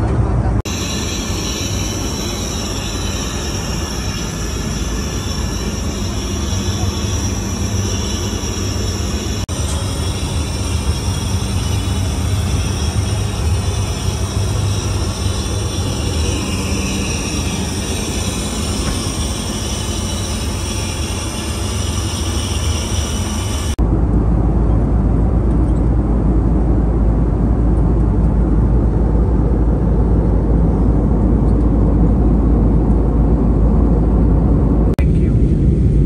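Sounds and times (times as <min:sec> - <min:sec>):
airliner cabin rumble: 0:00.0 - 0:36.0
airy hiss: 0:00.7 - 0:23.8.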